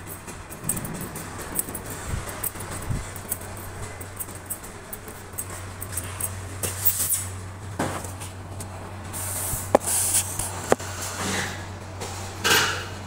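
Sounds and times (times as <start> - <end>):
sharp clicks and light knocks: 0.0 - 8.7
steady low hum: 0.0 - 13.0
short rustling hisses: 9.1 - 11.2.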